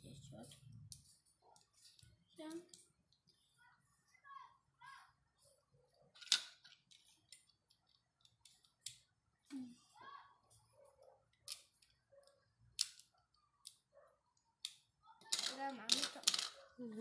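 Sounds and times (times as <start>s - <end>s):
plastic bricks clicking and rattling: 6.1s - 9.0s, 11.4s - 12.0s, 12.7s - 13.8s, 14.6s - 16.7s.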